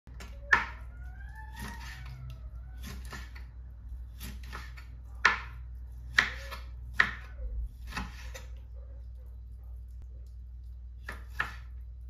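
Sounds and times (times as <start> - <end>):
knife chopping on cutting board: 2.8 - 3.4, 4.1 - 8.6, 11.0 - 11.8.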